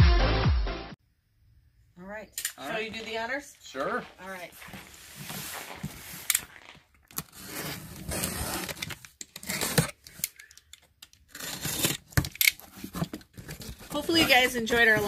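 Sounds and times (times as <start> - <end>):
box cutter slicing packing tape: 7.1 - 10.4, 11.2 - 15.0.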